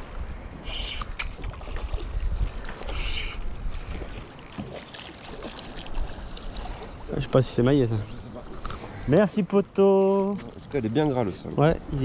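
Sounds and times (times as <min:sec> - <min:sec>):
wind rumbling on microphone: 0:00.0 - 0:08.4.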